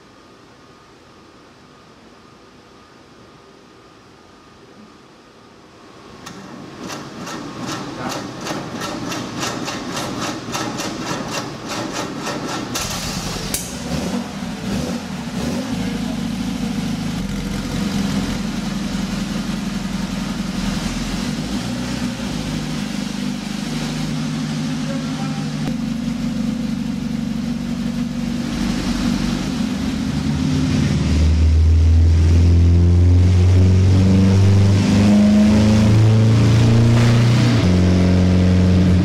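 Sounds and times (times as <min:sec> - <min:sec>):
car engine idling: 0:07.4 - 0:32.9.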